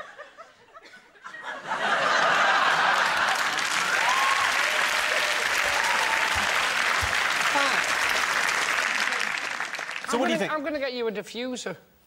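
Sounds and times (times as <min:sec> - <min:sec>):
audience laughter: 0:00.0 - 0:03.7
audience applause: 0:01.9 - 0:10.5.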